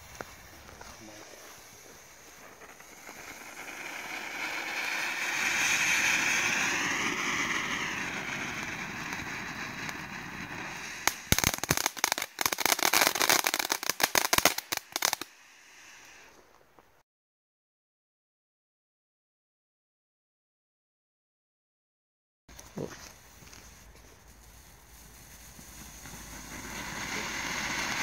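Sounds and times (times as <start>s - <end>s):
sharp crackling pops: 0.0s - 15.4s
firework fountain hissing: 0.0s - 16.4s, 23.1s - 28.0s.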